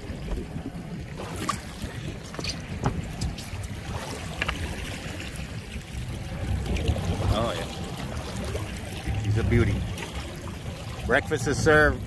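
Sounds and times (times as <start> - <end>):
water lapping against boat hull: 0.0 - 12.0
low rumble: 5.5 - 12.0.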